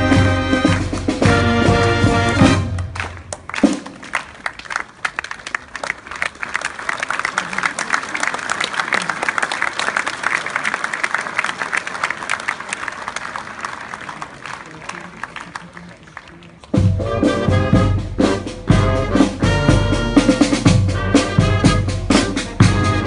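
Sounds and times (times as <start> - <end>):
crowd applauding: 0.5 - 16.9.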